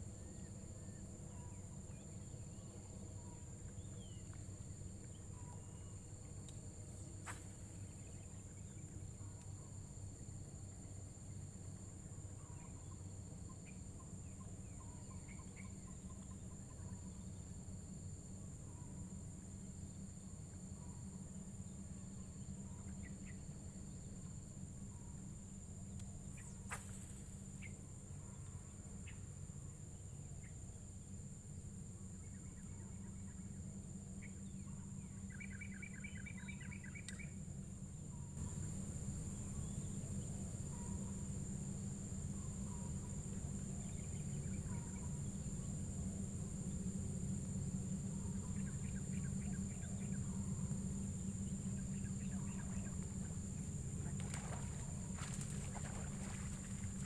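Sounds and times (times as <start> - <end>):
low steady hum: 0.0 - 57.0
high-pitched insect drone: 38.4 - 57.0.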